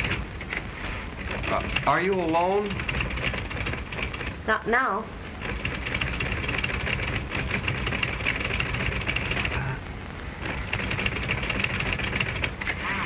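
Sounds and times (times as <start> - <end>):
film soundtrack hiss and crackle: 0.0 - 13.0
typewriter keys clattering: 1.2 - 4.4, 5.4 - 9.5, 10.5 - 12.8.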